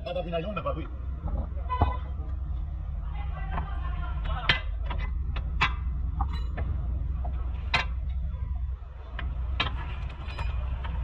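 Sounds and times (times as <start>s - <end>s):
steady low hum: 0.0s - 11.0s
metal clinks and knocks: 4.8s - 6.8s, 9.6s - 11.0s.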